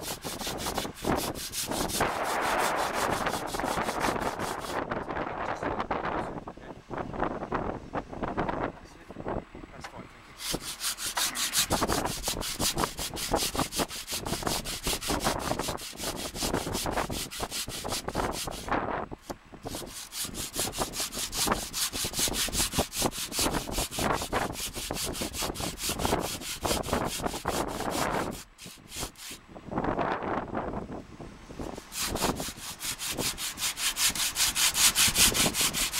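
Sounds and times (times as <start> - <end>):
hand saw rasping on stone: 0.0 - 4.9, 10.4 - 29.4, 31.6 - 35.9.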